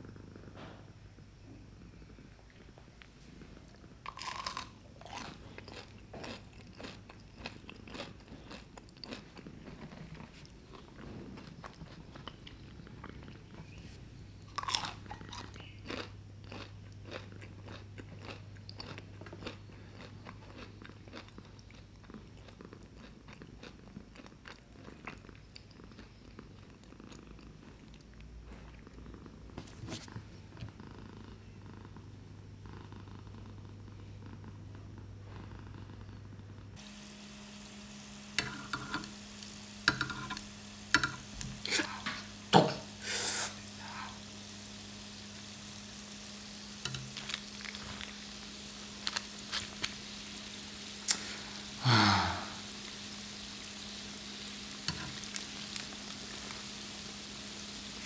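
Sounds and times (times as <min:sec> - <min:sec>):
crunchy chewing: 0:02.5 - 0:28.8, 0:43.6 - 0:51.4
crunchy bites: 0:04.1 - 0:10.3.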